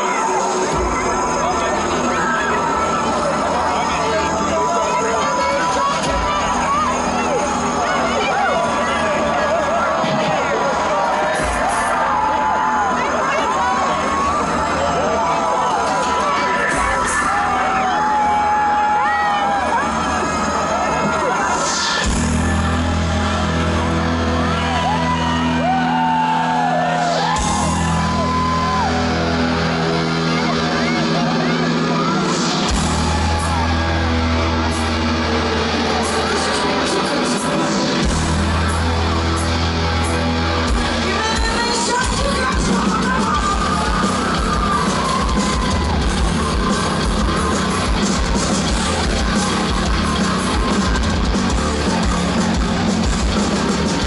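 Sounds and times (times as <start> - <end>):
audience shouting and whooping: 0.0 - 54.0
bass and synth tones: 0.0 - 54.0
distorted electric guitars: 0.0 - 54.0
drums: 0.0 - 54.0
live metal band: 0.0 - 54.0.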